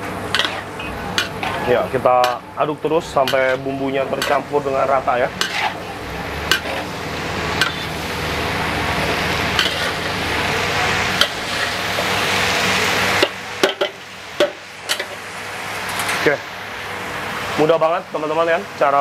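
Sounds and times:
beans sizzling in a wok: 0.0s - 19.0s
metal spatula clanking on a wok: 0.3s - 2.4s, 3.2s - 4.5s, 5.3s - 6.9s, 7.6s - 8.0s, 9.5s - 10.1s, 11.2s - 11.7s, 13.2s - 15.2s.

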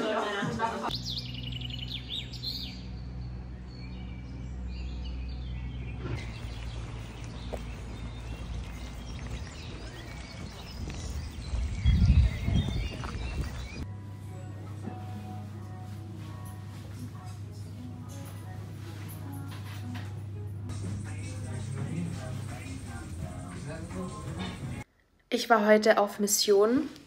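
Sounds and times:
birds chirping: 0.9s - 13.9s, 20.7s - 24.9s
louder low rumble: 2.8s - 13.8s
low outdoor rumble: 2.8s - 13.8s.

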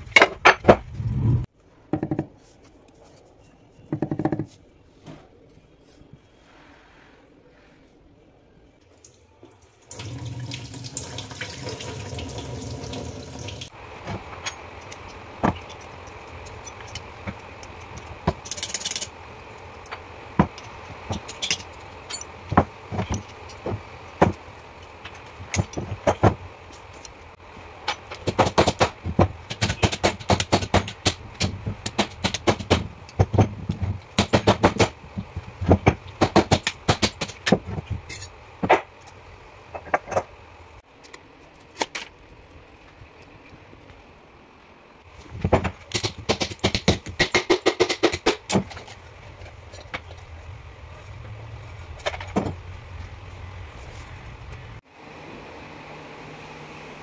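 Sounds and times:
tap water running into sink: 9.9s - 13.7s
metallic clinks and knocks: 14.2s - 23.7s.

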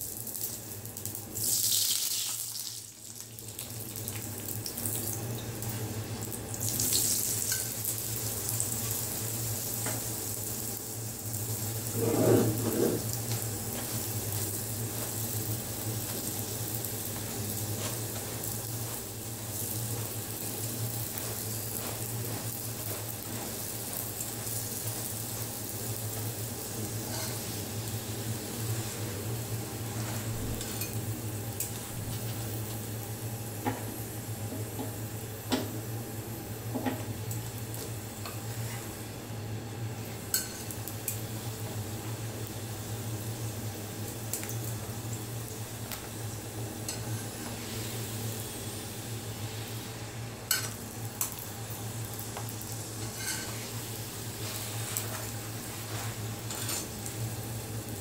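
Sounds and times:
flatbread sizzling in oil: 0.0s - 58.0s
metal spatula scraping griddle: 11.9s - 13.1s, 27.0s - 27.4s, 53.0s - 53.6s, 56.0s - 56.9s.

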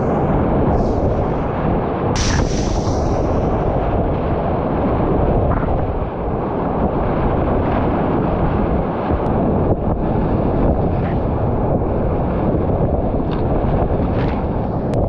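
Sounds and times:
sharp splash: 2.2s - 3.5s.

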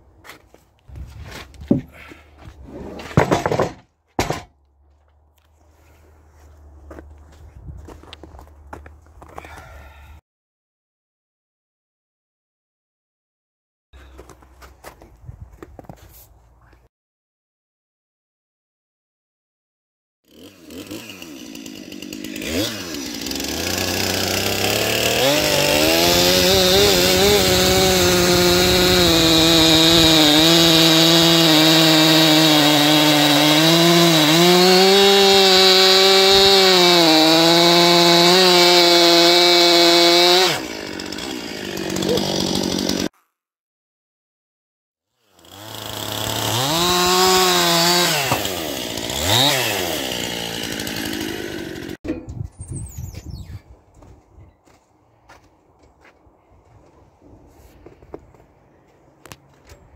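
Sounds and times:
chainsaw cutting wood: 1.6s - 4.5s, 20.3s - 43.3s, 45.2s - 52.0s.

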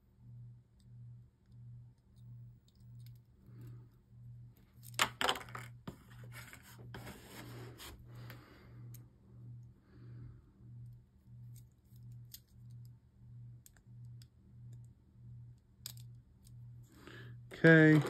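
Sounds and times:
pulsing low hum: 0.0s - 4.6s, 8.0s - 17.6s.

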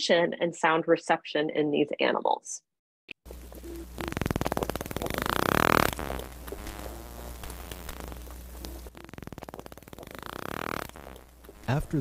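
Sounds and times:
dolphin echolocation clicks: 3.6s - 11.7s.

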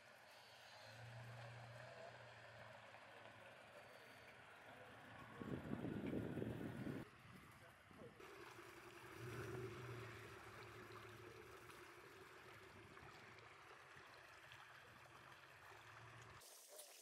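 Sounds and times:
faint engine hum: 0.0s - 16.4s.

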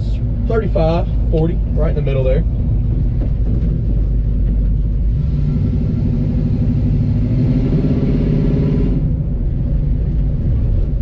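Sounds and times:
truck engine rumbling: 0.0s - 11.0s.

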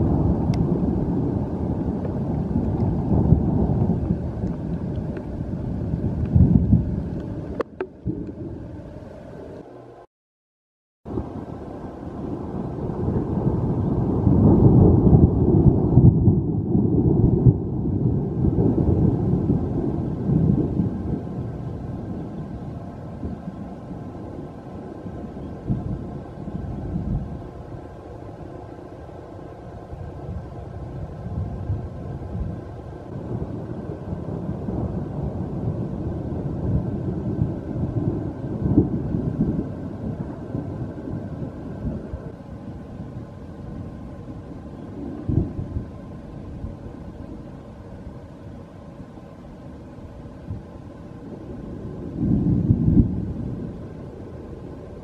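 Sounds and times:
rolling thunder rumble: 0.0s - 9.7s, 11.1s - 55.0s.

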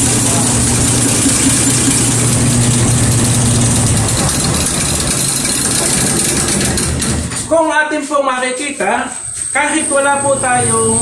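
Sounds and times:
machine hum: 0.0s - 7.7s.

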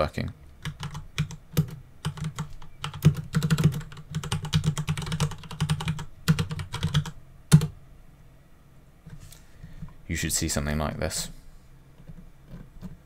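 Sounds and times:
typing on computer keyboard: 0.6s - 7.7s.

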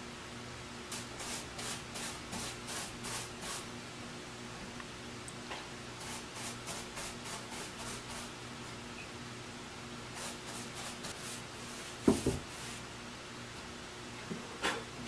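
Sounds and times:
paintbrush swishing on wood: 10.2s - 12.8s.

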